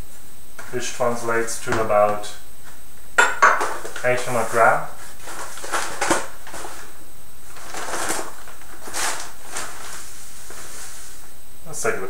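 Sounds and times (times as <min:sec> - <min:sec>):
paper and plastic sack crinkling: 0:03.6 - 0:11.2.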